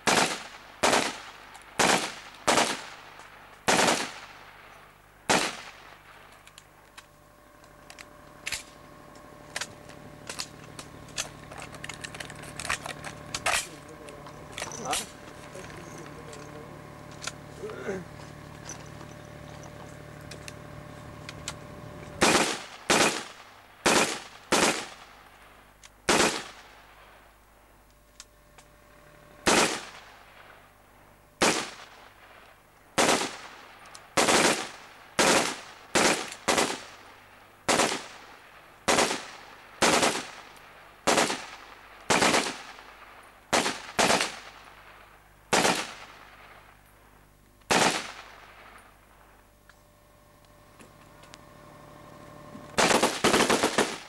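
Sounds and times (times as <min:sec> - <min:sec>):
rifle shots echoing: 0:00.0 - 0:06.5, 0:22.2 - 0:27.2, 0:29.4 - 0:30.6, 0:31.4 - 0:32.4, 0:33.0 - 0:46.8, 0:47.7 - 0:49.2, 0:52.8 - 0:54.0.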